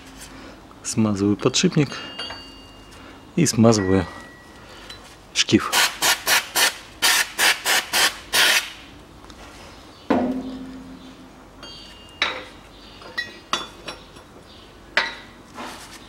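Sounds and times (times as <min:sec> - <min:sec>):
light metallic clinks: 0:01.5 - 0:03.0, 0:11.6 - 0:14.3.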